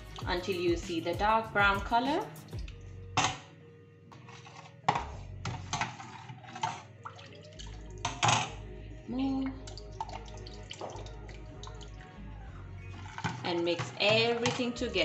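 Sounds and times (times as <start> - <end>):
liquid sloshing and splashing: 2.4 - 3.4, 5.5 - 8.6, 9.6 - 12.2, 12.8 - 14.8.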